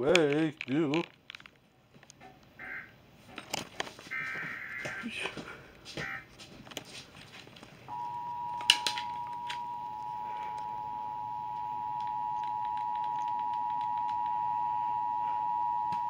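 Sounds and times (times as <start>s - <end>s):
two-tone alert signal: 7.9s - 16.0s.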